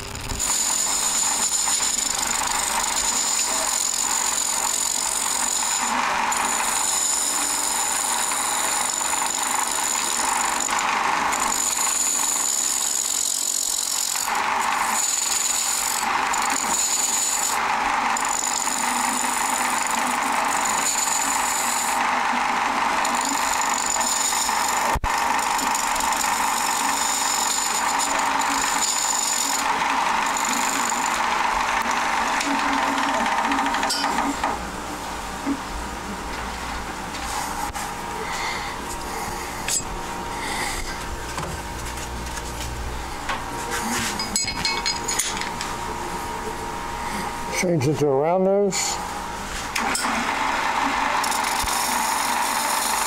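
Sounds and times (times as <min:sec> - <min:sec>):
lathe tool shaving wood: 0:00.0 - 0:34.7, 0:46.3 - 0:53.0
high lathe whine: 0:00.0 - 0:41.5, 0:43.0 - 0:53.0.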